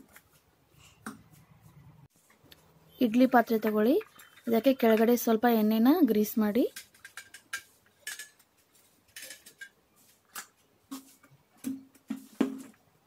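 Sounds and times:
metal plates scraping and clicking: 6.7 - 8.5, 9.1 - 9.8.

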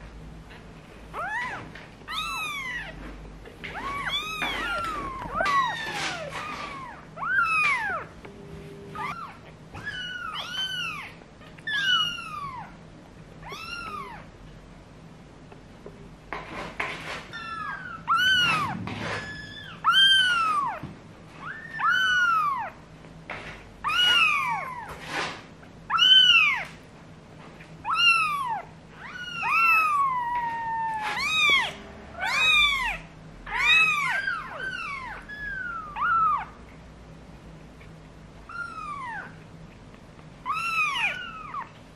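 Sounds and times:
kitten mewing: 13.4 - 14.3.

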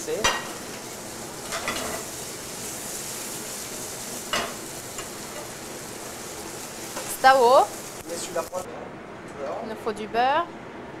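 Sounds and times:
fish sizzling in a frying pan: 0.0 - 8.7.

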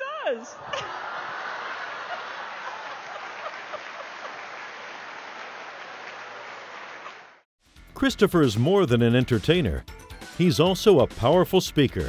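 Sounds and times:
audience applauding: 0.8 - 7.4.

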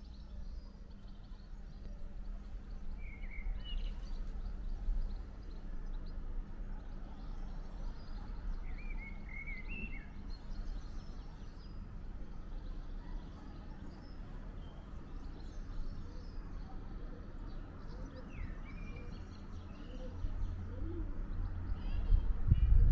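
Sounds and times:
steady low rumble: 0.0 - 15.8, 21.6 - 22.9
faint bird chirps: 0.0 - 22.3.

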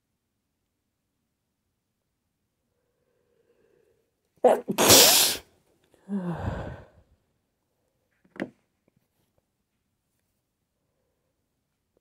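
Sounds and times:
woman sneezing: 4.4 - 5.5
voiced exhale: 6.1 - 7.0
woman catching breath: 6.1 - 7.1.

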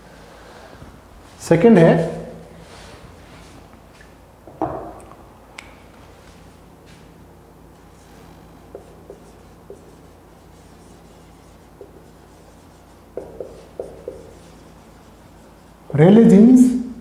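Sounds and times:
faint low hum: 0.0 - 17.0
marker squeaking on whiteboard: 8.7 - 15.9.

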